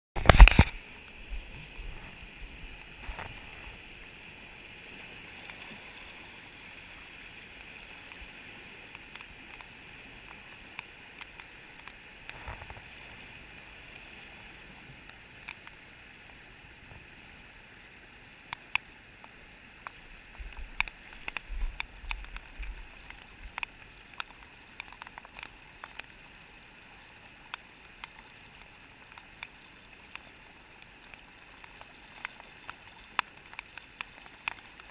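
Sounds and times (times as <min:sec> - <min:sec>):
light clicks and taps: 0:08.9 - 0:12.8, 0:18.5 - 0:26.2, 0:27.5 - 0:34.9.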